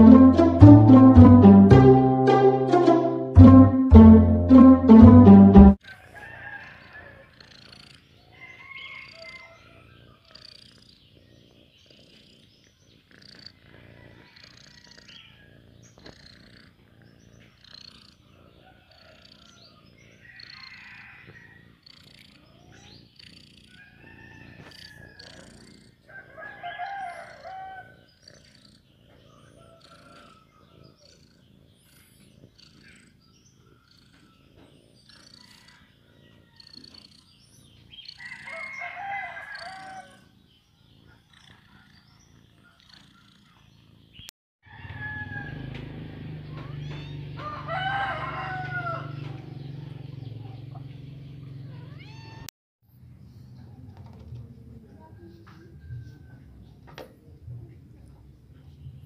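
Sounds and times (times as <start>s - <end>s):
cat purring: 7.2s - 26.3s, 27.2s - 38.4s, 39.5s - 44.3s
cat high-pitched calls: 46.5s - 47.3s, 51.7s - 52.5s.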